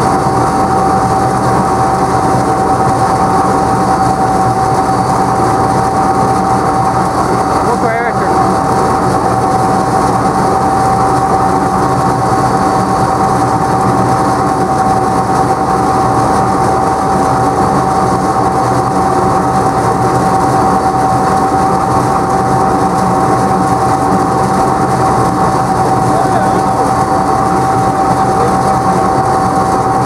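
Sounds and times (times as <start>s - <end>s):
steady hum: 0.0s - 30.0s
tractor engine: 0.0s - 30.0s.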